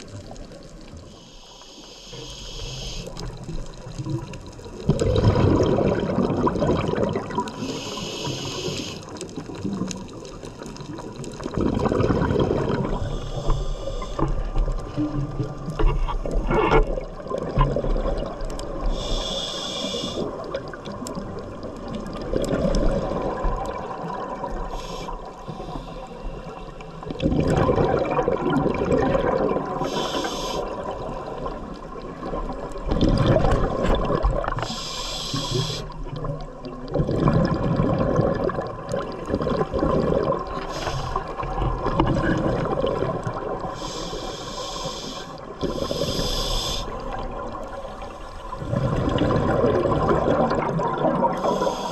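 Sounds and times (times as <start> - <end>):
regulator hissing on inhale: 1.0 - 3.4, 7.5 - 9.3, 12.9 - 14.6, 18.8 - 20.5, 24.6 - 26.9, 29.8 - 31.6, 34.4 - 36.1, 40.6 - 41.6, 43.6 - 48.6, 51.4 - 51.9
exhaled bubbles gushing: 3.2 - 25.5, 26.3 - 51.9.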